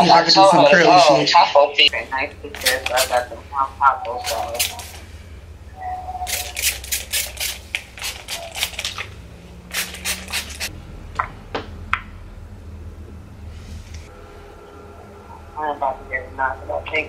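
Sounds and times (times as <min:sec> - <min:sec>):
spray bottle spritzing: 0:02.6 - 0:03.2, 0:04.2 - 0:05.0, 0:06.2 - 0:10.7.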